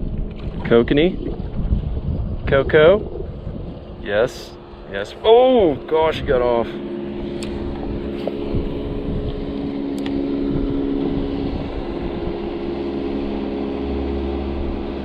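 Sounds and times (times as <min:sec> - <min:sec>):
motorboat engine droning: 0:00.0 - 0:15.0.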